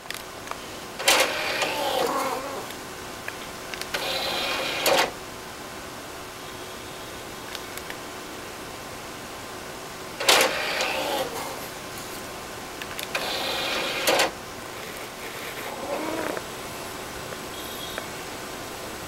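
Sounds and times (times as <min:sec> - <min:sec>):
disc tray motor whirring: 0:01.0 - 0:02.8, 0:03.8 - 0:05.2, 0:10.2 - 0:11.7, 0:13.0 - 0:16.5
cat meowing: 0:15.7 - 0:16.4.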